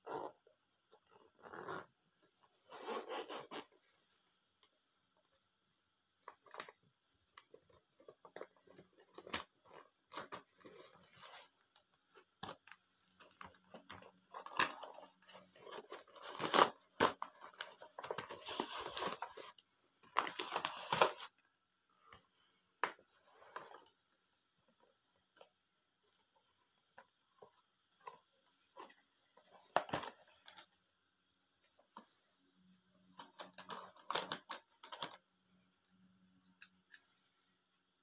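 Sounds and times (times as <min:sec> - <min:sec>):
zipper unzipping: 0:01.1 - 0:01.9.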